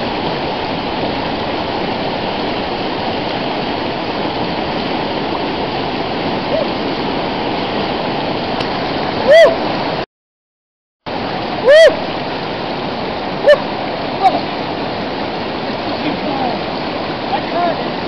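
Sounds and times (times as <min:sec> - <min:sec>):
river rushing over rapids: 0:00.0 - 0:10.0, 0:11.1 - 0:18.0
person yelling: 0:06.5 - 0:06.7, 0:09.3 - 0:09.6, 0:11.6 - 0:12.0.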